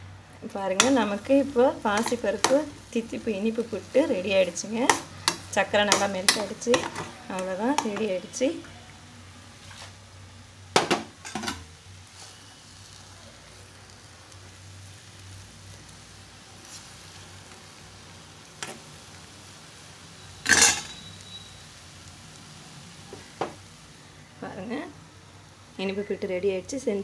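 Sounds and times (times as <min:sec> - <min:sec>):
spatula clanging on pan: 0:00.7 - 0:01.2, 0:02.0 - 0:02.7, 0:04.8 - 0:08.1, 0:20.4 - 0:21.0.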